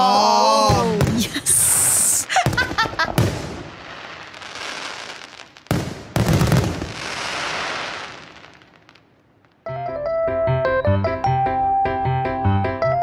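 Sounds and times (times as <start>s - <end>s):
fireworks bursting: 0.6s - 9.7s
firework hiss: 0.9s - 9.0s.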